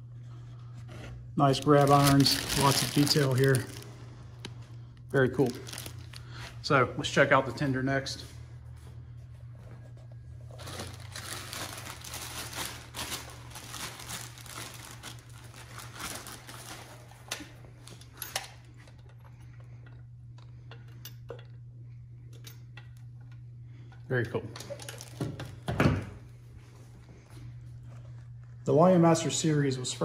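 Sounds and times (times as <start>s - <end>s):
plastic wrapping crinkling: 1.4s - 6.6s, 10.4s - 18.0s, 24.7s - 25.6s.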